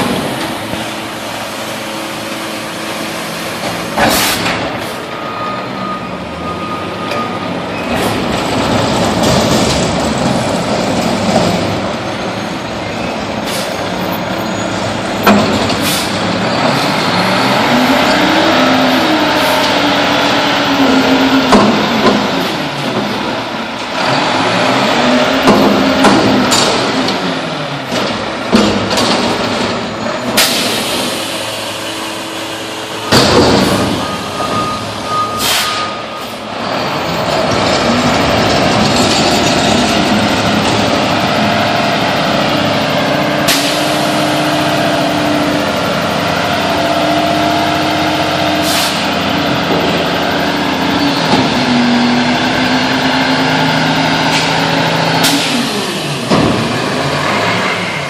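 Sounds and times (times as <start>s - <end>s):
diesel engine running: 0.0s - 58.0s
air brake hisses: 15.8s - 16.2s, 35.4s - 35.8s, 48.6s - 49.0s
metal bangs and clanks: 27.9s - 31.2s, 33.0s - 36.1s.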